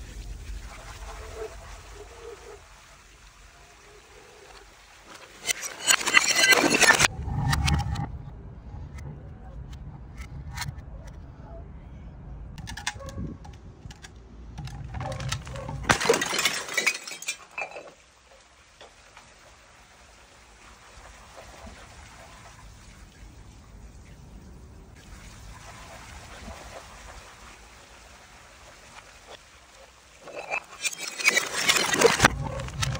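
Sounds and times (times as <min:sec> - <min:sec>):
glass bottle shattering: 0:05.4 - 0:07.1, 0:14.7 - 0:18.0, 0:30.2 - 0:32.9
glass bottle rolling down steps: 0:05.4 - 0:07.6, 0:14.6 - 0:18.0, 0:30.2 - 0:32.9
soda fizzing: 0:24.9 - 0:32.2.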